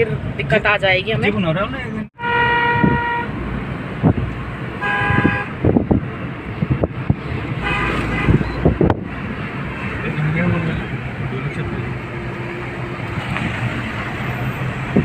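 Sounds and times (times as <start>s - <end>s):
car driving rumble: 0.0s - 15.0s
car horn honking: 2.2s - 3.4s, 4.8s - 5.7s, 7.6s - 8.8s.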